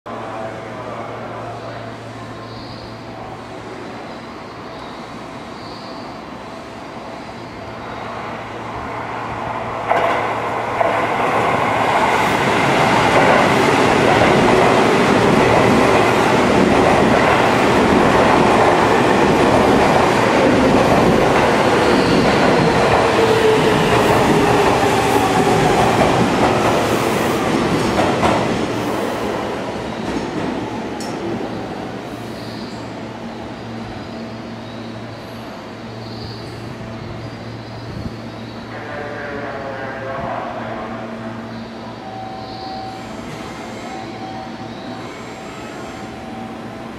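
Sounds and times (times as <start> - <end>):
train wheels clattering on rails: 9.8 - 29.2.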